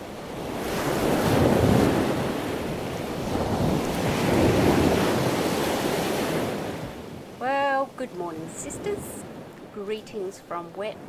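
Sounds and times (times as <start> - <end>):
surf washing onto beach: 0.0 - 7.5
wind buffeting microphone: 0.0 - 11.0.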